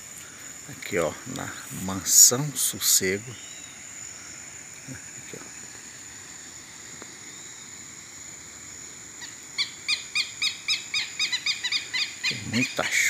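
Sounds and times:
high insect buzz: 0.0 - 13.0
lapwing calling harshly: 9.2 - 13.0.

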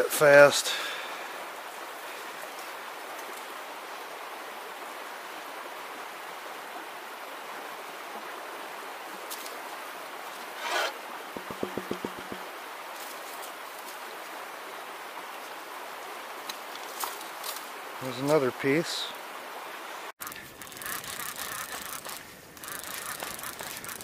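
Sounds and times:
creek running: 0.7 - 24.0
light taps on plastic pan: 11.4 - 12.4.

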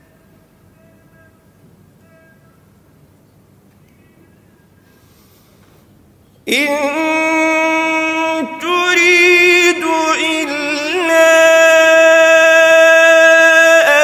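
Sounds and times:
man chanting melodically: 6.5 - 14.0.

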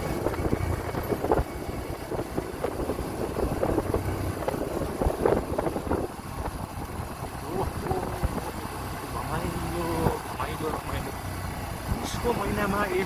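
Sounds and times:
wind on microphone: 0.0 - 8.6
road noise: 0.0 - 13.0
vehicle engine running: 0.0 - 13.0.

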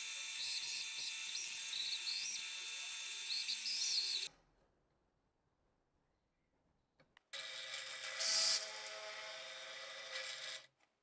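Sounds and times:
bandsaw whining: 0.0 - 4.3.

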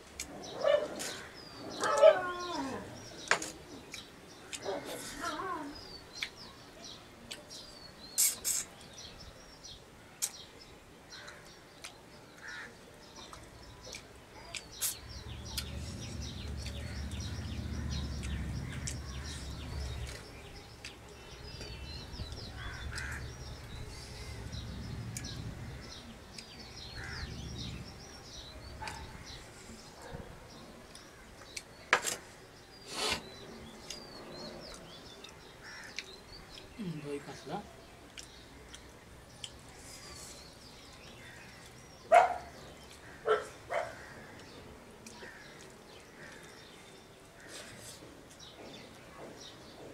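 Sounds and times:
birds calling faintly: 0.0 - 49.9
low rumble: 23.2 - 25.9.

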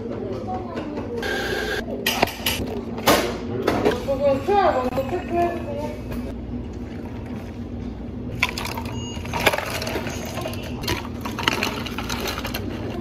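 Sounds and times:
ice crackling and clinking: 8.4 - 13.0.

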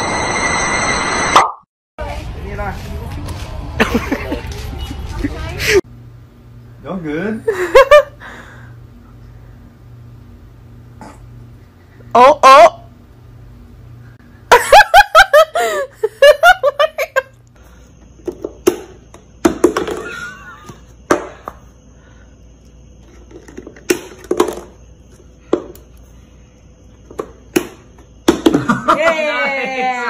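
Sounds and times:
person laughing: 3.8 - 5.8, 7.5 - 8.2, 14.5 - 17.3
plastic cup knocking on table: 18.2 - 20.1, 23.3 - 24.8, 27.1 - 28.7.

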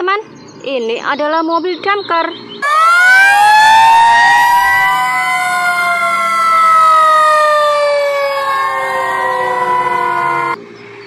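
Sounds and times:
fire truck sirens wailing: 2.6 - 10.6.

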